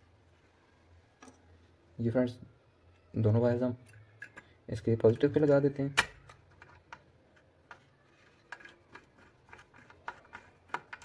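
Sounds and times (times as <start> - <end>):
screwdriver clicks and scrapes: 3.9 - 11.0.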